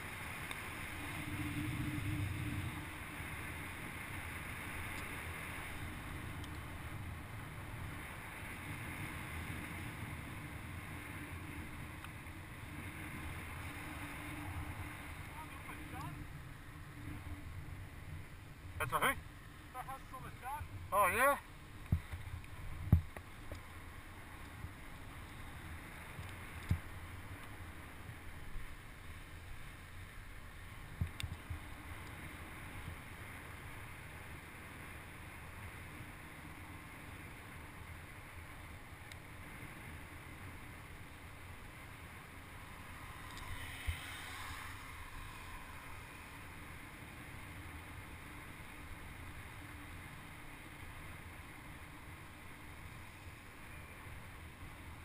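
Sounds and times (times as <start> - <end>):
bike tyre hiss on wet road: 0.0 - 15.3, 23.3 - 55.0
wind on microphone: 0.0 - 18.8.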